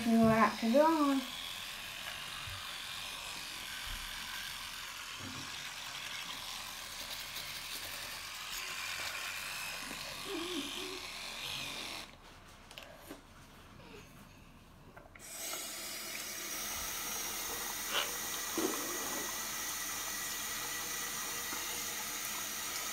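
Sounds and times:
electric toothbrush buzzing: 0.0s - 12.2s, 15.2s - 22.9s.

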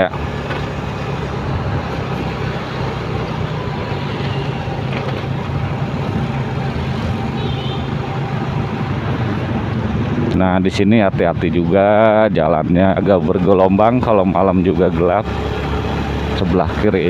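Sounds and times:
motorcycle engine running: 0.0s - 11.8s, 13.1s - 17.0s
road noise: 0.0s - 17.0s
wind noise: 3.3s - 14.3s.

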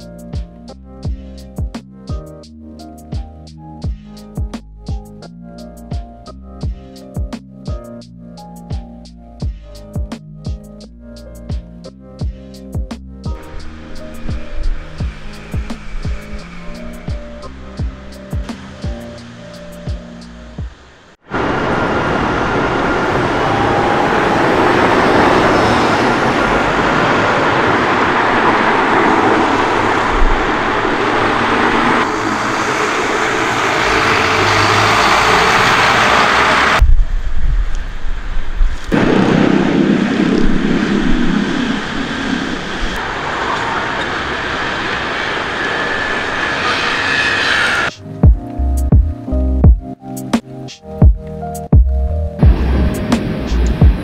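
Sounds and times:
passing cars: 13.4s - 36.9s
heavy vehicle engine: 20.8s - 36.8s, 38.9s - 48.0s, 52.4s - 54.0s.

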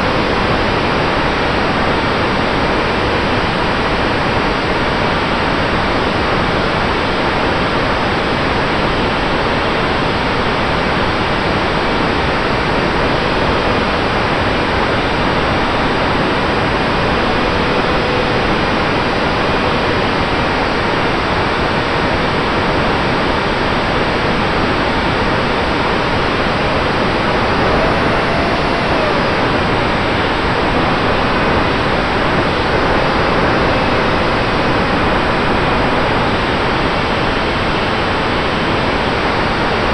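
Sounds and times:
static hiss: 0.0s - 39.9s
faint steady tones: 8.8s - 38.5s.

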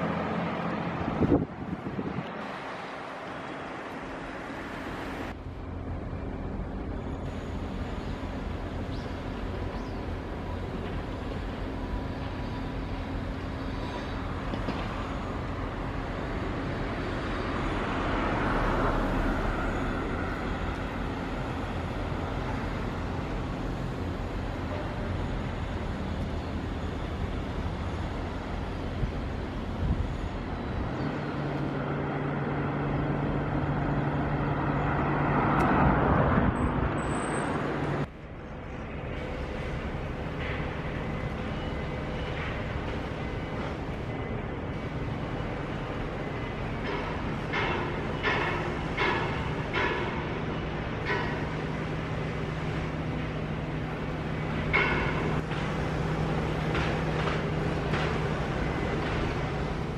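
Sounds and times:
low machinery hum: 0.0s - 59.9s
outdoor noise: 0.0s - 59.9s.

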